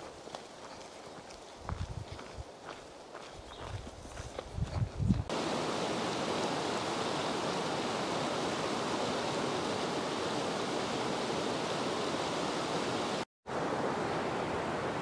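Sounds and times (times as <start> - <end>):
river water rushing over rocks: 5.3 - 15.0.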